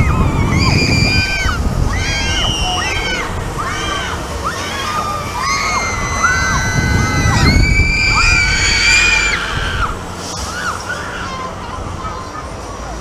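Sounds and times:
low rumble: 0.0s - 10.5s
riders screaming: 0.0s - 12.0s.

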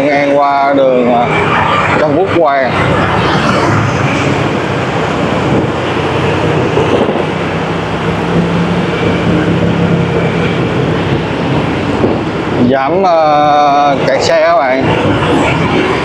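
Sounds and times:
road traffic hum: 0.0s - 16.0s.

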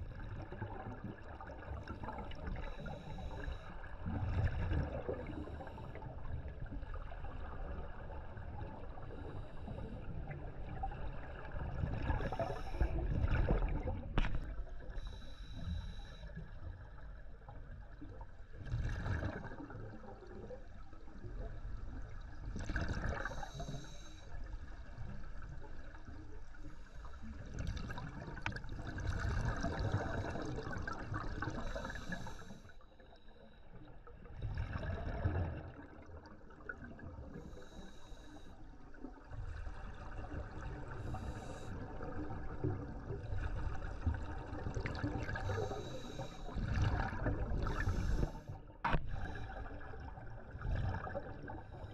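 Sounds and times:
low rumble of water: 0.0s - 51.9s
underwater bubbling: 0.0s - 51.9s
diver breathing through regulator: 2.6s - 4.0s, 12.1s - 13.4s, 14.8s - 16.4s, 23.0s - 24.4s, 29.6s - 33.7s, 37.3s - 38.7s, 40.9s - 42.3s, 45.0s - 49.8s.

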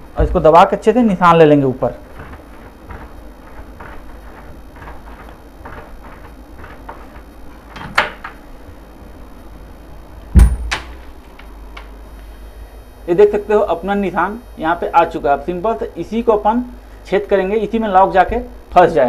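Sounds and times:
wardrobe door thumping open: 3.8s - 8.4s, 10.4s - 11.0s.

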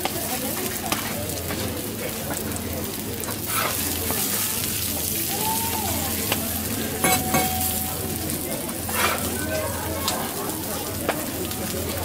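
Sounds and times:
pancake sizzling on griddle: 0.0s - 12.0s
metal spatula scraping griddle: 3.5s - 3.8s, 8.8s - 9.4s.

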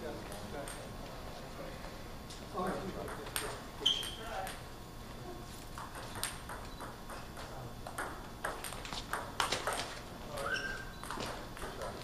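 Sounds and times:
table tennis ball clicking: 5.8s - 7.2s, 7.8s - 10.0s
short rising squeak: 10.4s - 11.0s.

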